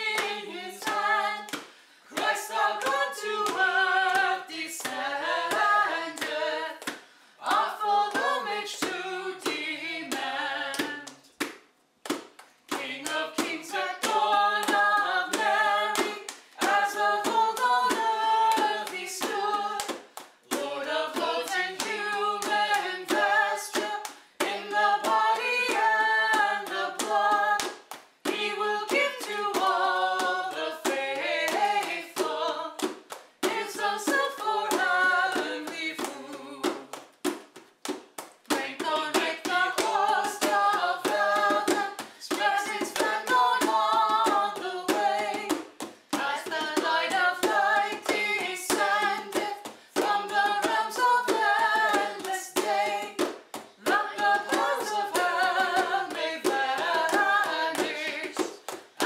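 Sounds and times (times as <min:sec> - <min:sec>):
hymn singing: 0:00.0 - 0:06.8.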